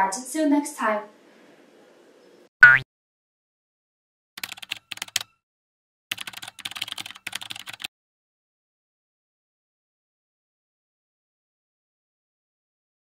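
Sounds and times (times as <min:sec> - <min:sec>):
typing on computer keyboard: 0:04.4 - 0:05.4, 0:06.1 - 0:07.9.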